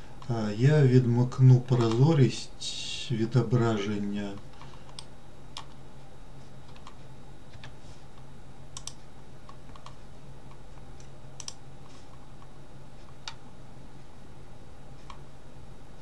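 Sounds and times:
steady low hum: 0.0 - 16.0
mouse and keyboard clicks: 8.8 - 10.0.

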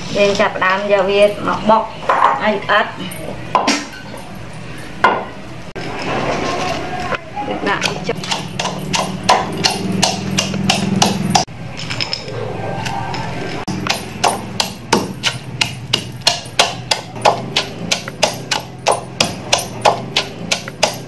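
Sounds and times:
pestle pounding in clay mortar: 7.8 - 11.5, 13.7 - 21.0.

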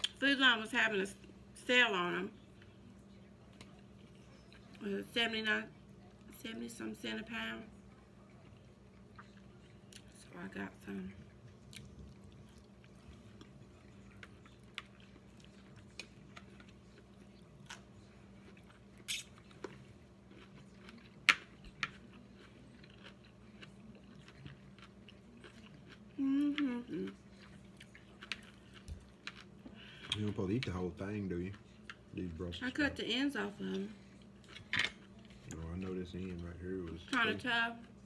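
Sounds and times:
person chewing with crunches: 8.3 - 10.2, 11.3 - 32.4
person humming: 26.2 - 27.1.

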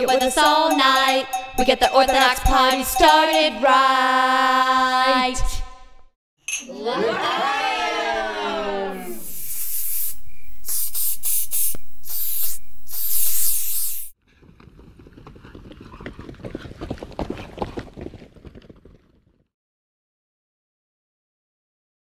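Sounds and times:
loud bursts of hiss: 9.0 - 14.2.

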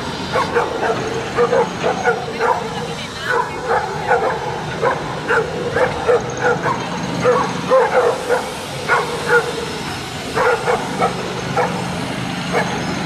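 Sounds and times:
dogs barking: 0.1 - 13.0.

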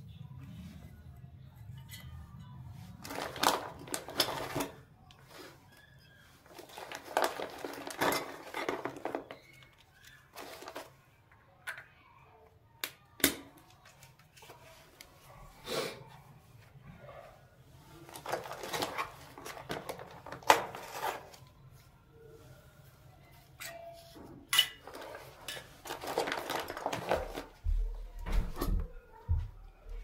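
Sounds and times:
plastic packaging rustling: 2.9 - 11.1, 17.9 - 21.7, 24.7 - 27.6.

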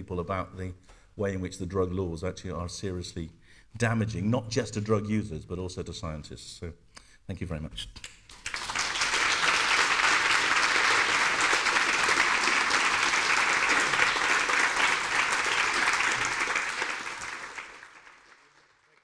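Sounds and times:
audience applauding: 8.3 - 19.0.

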